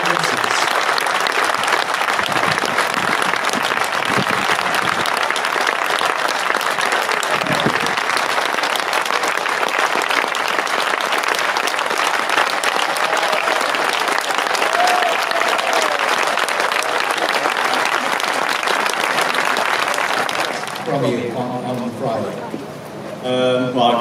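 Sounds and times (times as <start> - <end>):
crowd applauding: 0.0 - 21.5.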